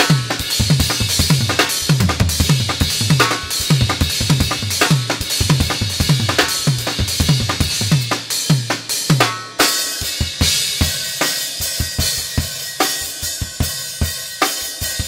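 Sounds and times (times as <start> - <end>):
bass drum and snare hits: 0.0 - 8.2
rapid low drum strokes: 0.5 - 8.6.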